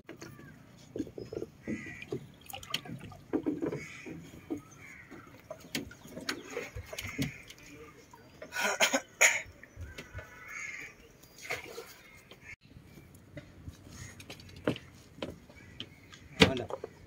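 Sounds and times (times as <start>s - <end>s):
water lapping around boat: 0.0s - 17.0s
birds calling: 0.1s - 17.0s.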